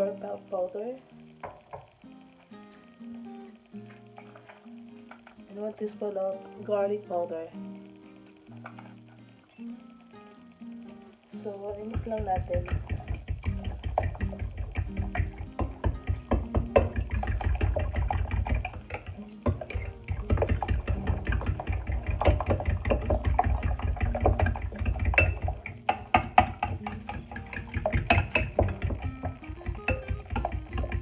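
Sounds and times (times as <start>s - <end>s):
background music: 0.0s - 31.0s
fork beating eggs in bowl: 11.6s - 31.0s.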